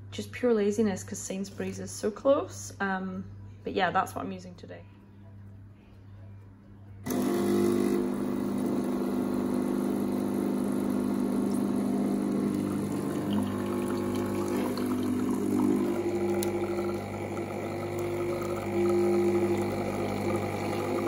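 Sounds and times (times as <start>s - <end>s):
coffee streaming into a mug: 7.1s - 21.0s
espresso machine pump humming: 7.1s - 21.0s.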